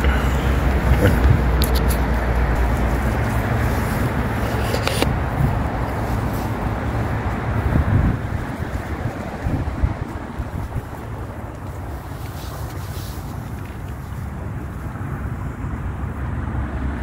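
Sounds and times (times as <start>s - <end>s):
heavy traffic roar: 0.0s - 17.0s.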